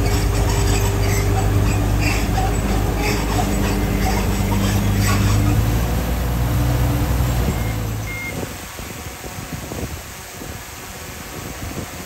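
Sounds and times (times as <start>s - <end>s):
bulldozer diesel engine: 0.0s - 9.2s
short high beep: 7.5s - 8.4s.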